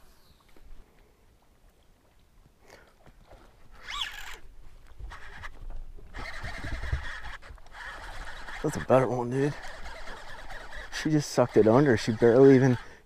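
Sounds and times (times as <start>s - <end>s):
fishing reel whine: 3.8s - 4.4s, 5.1s - 13.0s
fishing reel whirring: 3.8s - 13.0s.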